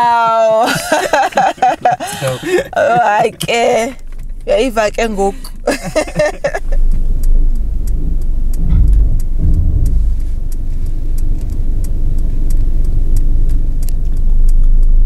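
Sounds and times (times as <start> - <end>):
road and engine rumble: 0.0 - 15.0
faint light clicks: 6.5 - 15.0.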